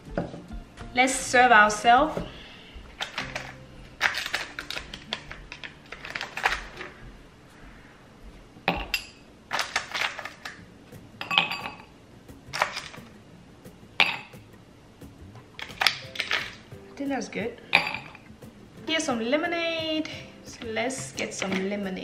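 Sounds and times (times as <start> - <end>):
ice cubes clinking in glass: 15.6 - 16.6.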